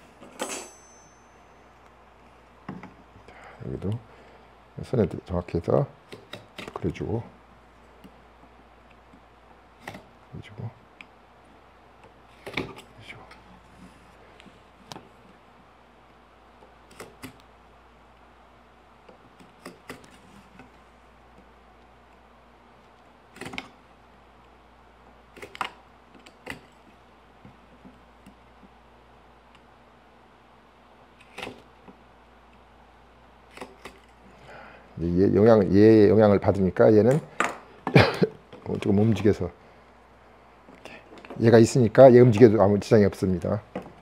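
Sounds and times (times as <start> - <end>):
tools clicking on wood: 6.1 - 6.8.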